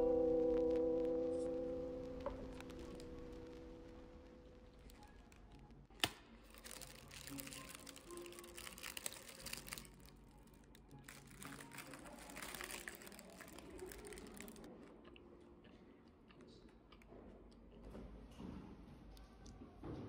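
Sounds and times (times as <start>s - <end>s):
paper box rustling: 6.5s - 10.1s, 11.0s - 14.7s.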